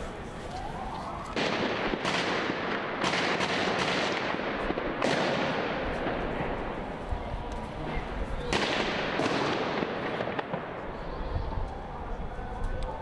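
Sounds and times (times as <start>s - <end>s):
continuous noisy din: 0.0s - 13.0s
gunshots with ringing echo: 1.4s - 6.7s, 8.4s - 10.9s.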